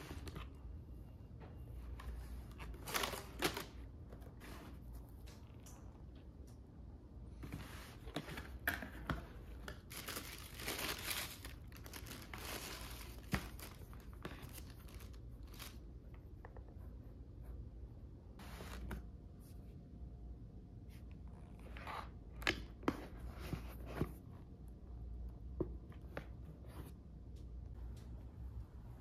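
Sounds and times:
tissue paper rustling: 9.8s - 15.8s.

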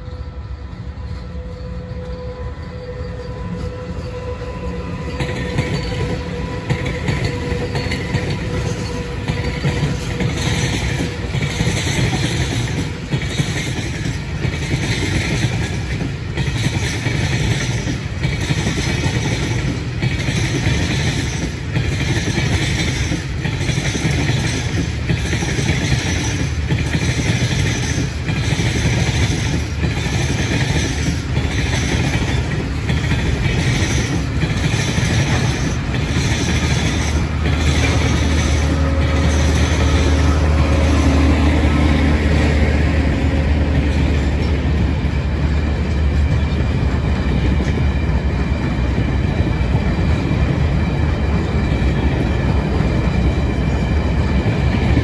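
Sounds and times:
freight train rumbling past: 0.0s - 55.0s
locomotive whine: 0.0s - 55.0s
train wheels clattering: 1.0s - 55.0s.

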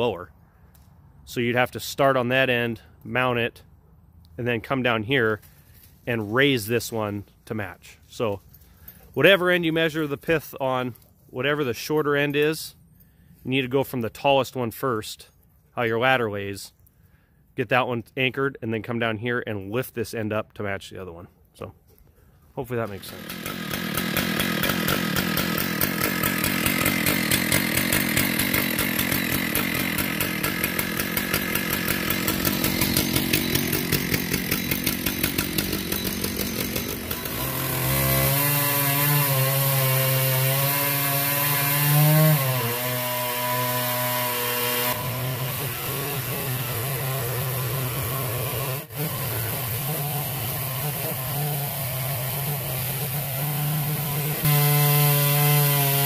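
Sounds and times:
chainsaw ripping a log: 22.8s - 56.0s.

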